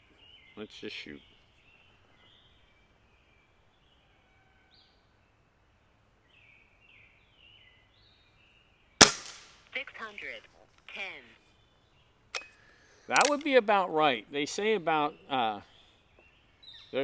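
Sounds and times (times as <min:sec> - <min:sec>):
air rifle shot crack: 0:09.0 - 0:09.6.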